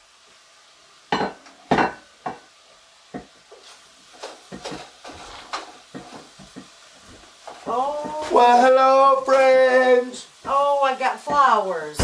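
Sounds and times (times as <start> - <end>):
wooden spoon scraping food in pan: 3.2 - 8.5.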